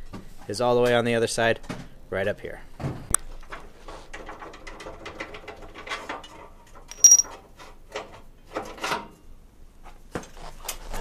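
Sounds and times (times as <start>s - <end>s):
metal clicks and knocks: 6.9s - 7.3s
sharp metallic clink: 6.9s - 7.3s.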